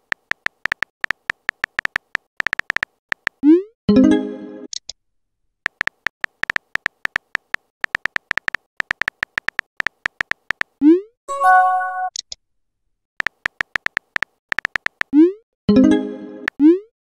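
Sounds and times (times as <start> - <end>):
keyboard tap clicks: 0.1 - 3.4, 5.7 - 10.7, 13.2 - 15.1
message chime: 11.3 - 12.1.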